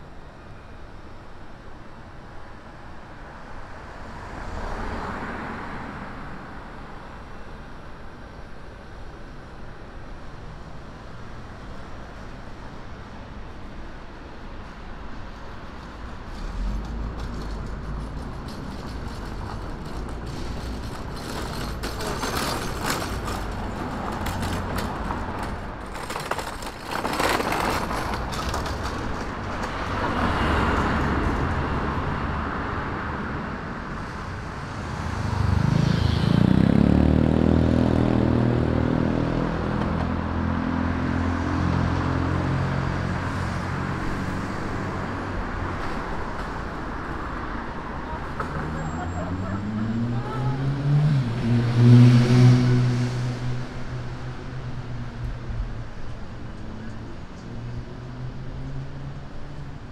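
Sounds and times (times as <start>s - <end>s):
cars passing: 3.3s - 9.6s, 10.4s - 59.9s
vehicle engine accelerating: 34.8s - 44.3s.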